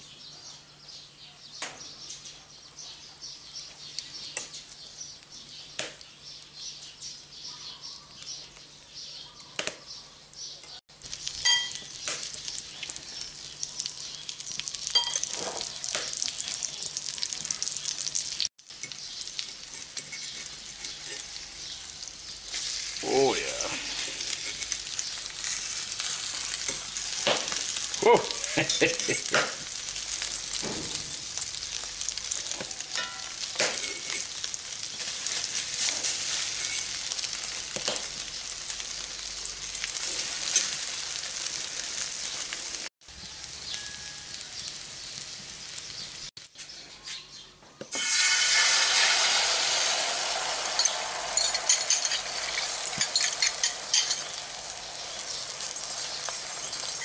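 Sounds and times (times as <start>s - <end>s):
food sizzling in oil: 10.9s - 46.6s, 47.9s - 57.0s
egg poured into hot oil: 11.0s - 42.6s, 47.9s - 57.0s
fork clinking against pan: 11.4s - 11.9s, 33.0s - 34.3s, 50.8s - 54.4s.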